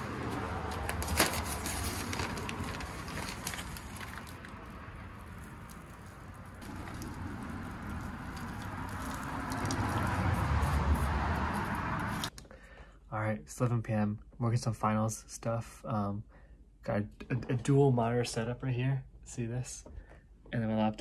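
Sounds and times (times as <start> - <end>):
plastic bag rustling: 0.0 - 10.5
soil scattered by hand: 0.0 - 12.3.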